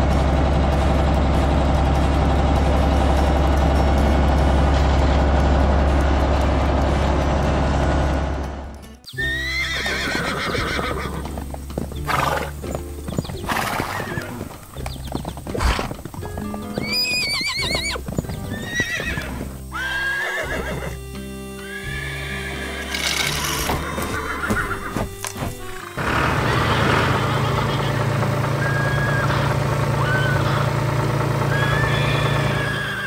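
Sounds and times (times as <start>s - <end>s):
background music: 0.0s - 33.0s
hooves knocking: 0.0s - 33.0s
tractor engine running: 0.0s - 33.0s
horses neighing: 9.1s - 33.0s.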